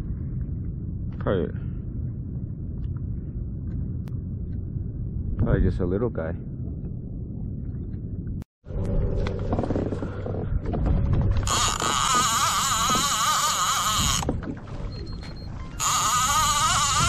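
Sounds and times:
wind rumble: 0:00.0 - 0:17.0
fishing reel gear whine: 0:11.4 - 0:17.0.

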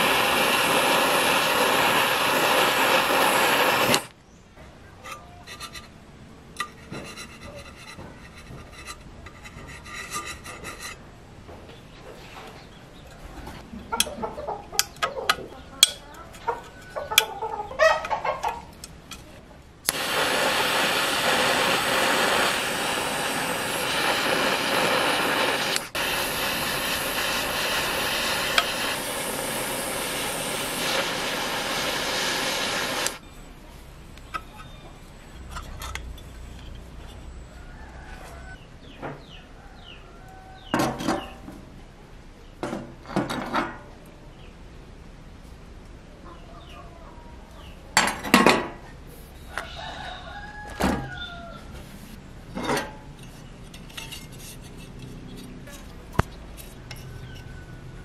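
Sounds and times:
power tool running: 0:19.9 - 0:33.2.

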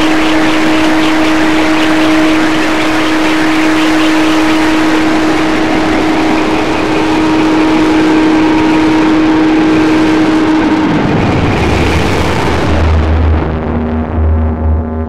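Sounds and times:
deep bass note: 0:00.0 - 0:15.0
distorted electronic noise: 0:00.0 - 0:15.0
steady held tone: 0:00.0 - 0:15.0.

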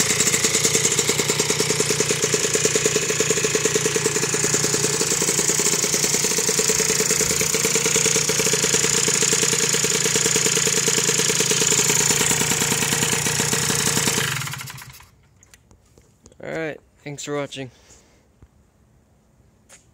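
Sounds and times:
moped engine idling: 0:00.0 - 0:15.2.

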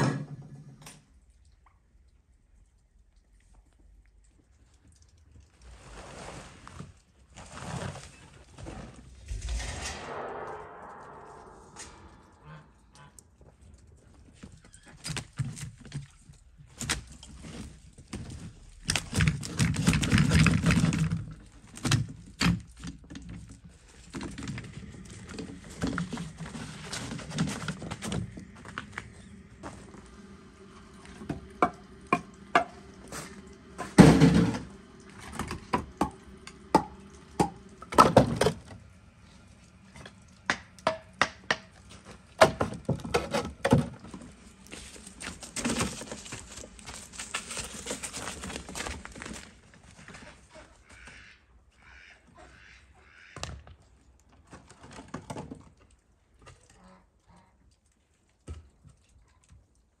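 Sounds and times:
rough scraping: 0:08.6 - 0:12.8.

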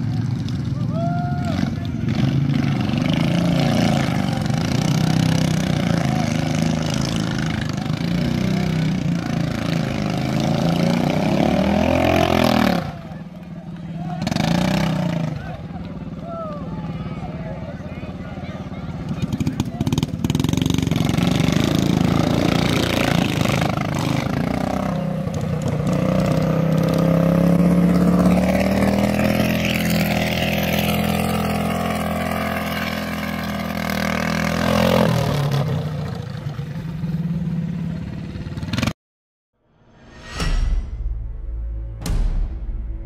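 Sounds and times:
kart engine revving: 0:01.4 - 0:16.2, 0:17.7 - 0:38.9
music: 0:40.0 - 0:43.0.

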